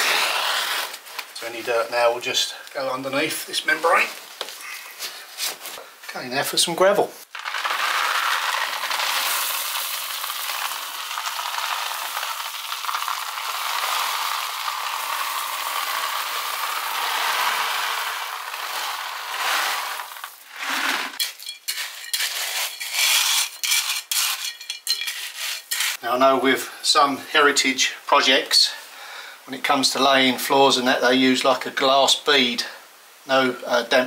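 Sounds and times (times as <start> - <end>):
gravel pouring from bucket: 7.3 - 26.0
stones clicking and scraping: 7.3 - 26.0.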